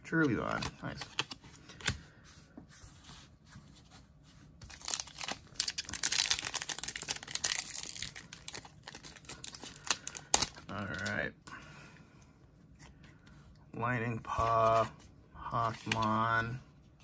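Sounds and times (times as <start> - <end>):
foil pack crinkling and tearing: 4.6 - 11.2.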